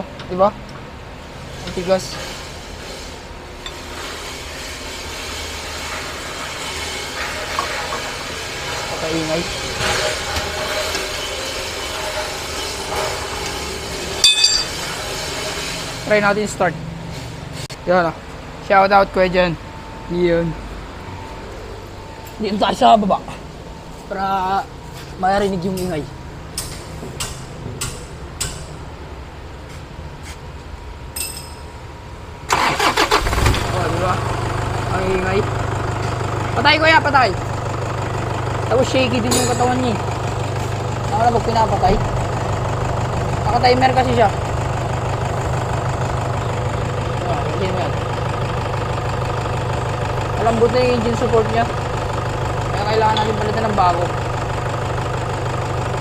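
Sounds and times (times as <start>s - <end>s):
low mechanical hum with hiss: 0.0s - 48.4s
engine idling low rumble: 33.3s - 56.0s.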